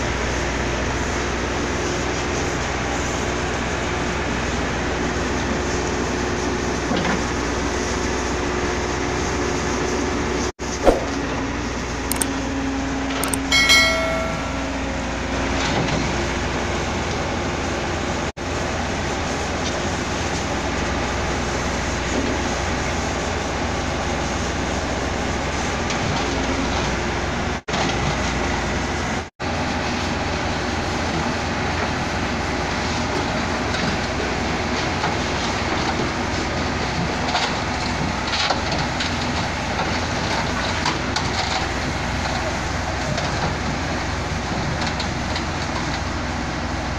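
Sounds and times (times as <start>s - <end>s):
heavy diesel machinery running: 0.0s - 10.5s, 11.2s - 46.9s
short electronic chime: 13.2s - 15.1s.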